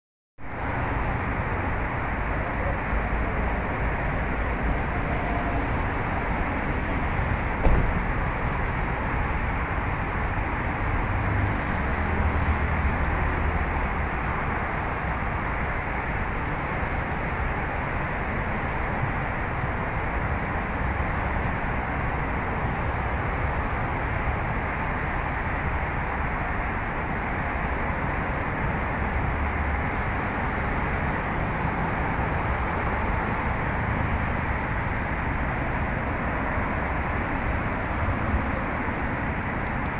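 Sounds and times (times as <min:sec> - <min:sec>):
road traffic noise: 0:00.4 - 0:39.9
brief knock: 0:07.6 - 0:08.0.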